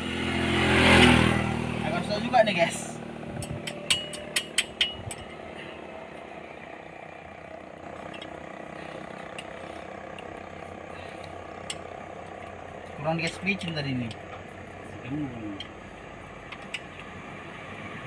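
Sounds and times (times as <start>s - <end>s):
sharp metallic clicks: 3.4s - 5.4s, 15.5s - 17.2s.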